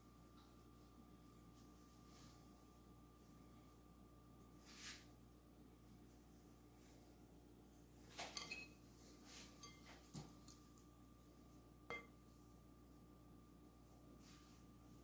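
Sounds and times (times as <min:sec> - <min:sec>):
low steady hum: 0:00.0 - 0:15.0
dishes and utensils clinking: 0:08.2 - 0:08.8, 0:09.6 - 0:10.0.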